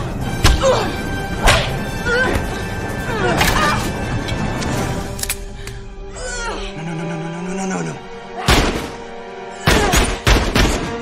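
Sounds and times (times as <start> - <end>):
tense score music: 0.0 - 11.0.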